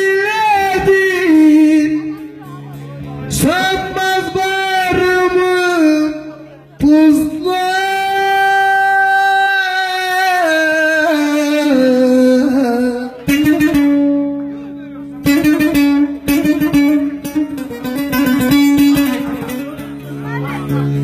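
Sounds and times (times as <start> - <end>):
man singing long held note: 0.0 - 2.2, 3.3 - 14.7
long-necked lute strumming: 0.0 - 21.0.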